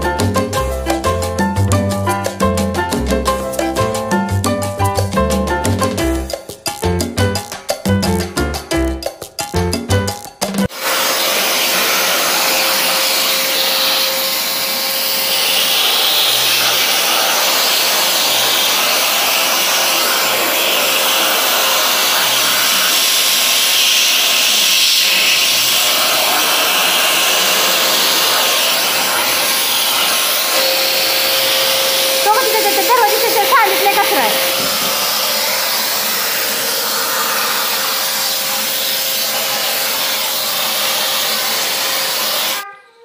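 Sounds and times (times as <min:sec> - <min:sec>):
vacuum cleaner running: 0:10.7 - 0:42.6
vacuum nozzle sucking at cushion: 0:10.7 - 0:42.6.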